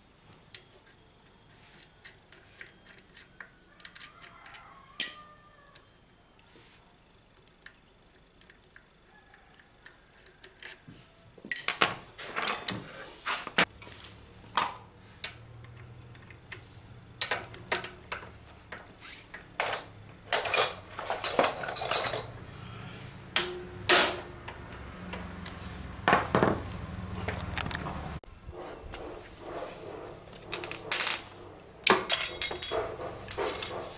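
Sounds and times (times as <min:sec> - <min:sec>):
metal tools clanking on engine casing: 0:19.6 - 0:25.3, 0:30.5 - 0:33.9.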